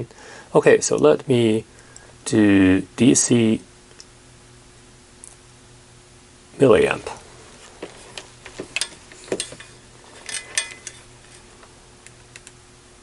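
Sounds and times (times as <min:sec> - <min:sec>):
test probes clicking and knocking: 0:07.8 - 0:12.6.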